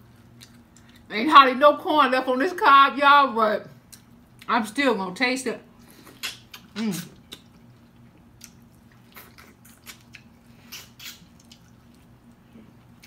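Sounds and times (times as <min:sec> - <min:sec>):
wet eating clicks and smacks: 0:06.0 - 0:13.0.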